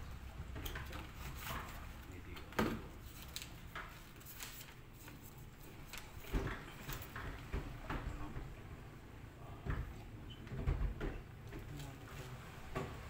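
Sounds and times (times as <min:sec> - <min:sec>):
paper rustling: 0:03.0 - 0:07.2.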